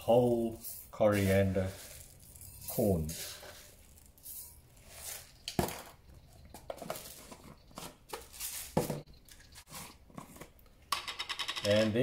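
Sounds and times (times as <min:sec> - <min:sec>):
seeds rattling into glass bowl: 0:00.3 - 0:07.3.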